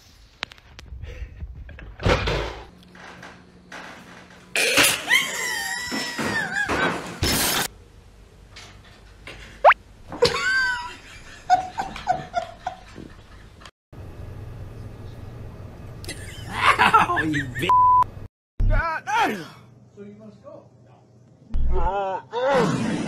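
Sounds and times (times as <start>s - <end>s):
human shrieks and squeals: 5.0s - 6.7s, 21.7s - 23.0s.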